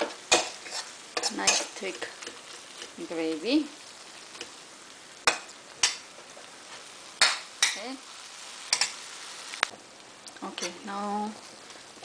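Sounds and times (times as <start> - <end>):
steel spoon scraping a wok: 0.0 - 3.0, 8.7 - 9.0, 10.6 - 10.9
faint frying sizzle: 0.0 - 12.0.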